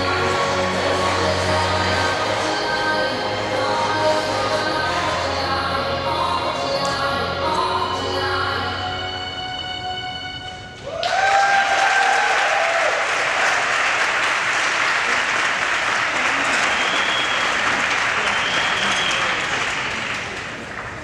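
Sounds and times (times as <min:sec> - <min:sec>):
music: 0:00.0 - 0:10.9
cheer: 0:10.8 - 0:19.7
audience applause: 0:10.9 - 0:21.0
high whistles: 0:16.5 - 0:19.5.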